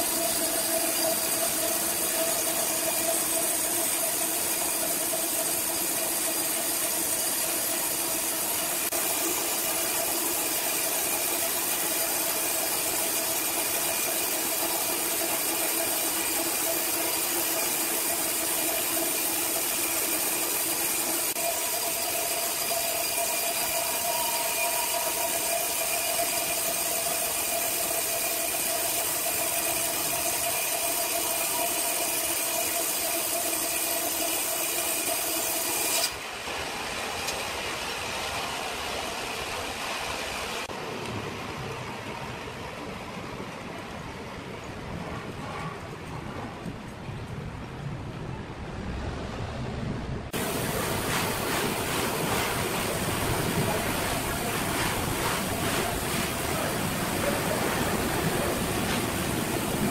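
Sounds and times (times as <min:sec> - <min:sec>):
band saw motor humming: 0:00.0 - 0:36.4, 0:50.4 - 0:59.9
saw blade hissing through log: 0:00.0 - 0:36.4, 0:50.4 - 0:59.9.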